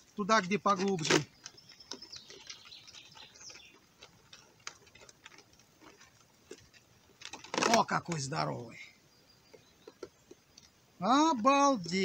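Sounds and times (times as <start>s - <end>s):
clicks and rustles of a mesh trap: 0.2s - 8.5s
faint bird chirps: 1.2s - 3.9s, 8.6s - 11.1s.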